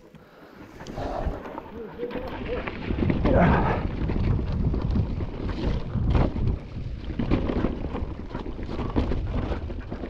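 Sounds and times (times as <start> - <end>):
wind buffeting microphone: 0.7 - 10.0
bike knocks and clatter: 4.0 - 10.0.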